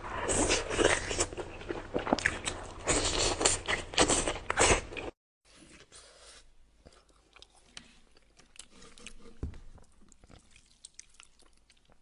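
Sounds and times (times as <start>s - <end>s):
crunchy food chewing: 0.2s - 5.1s.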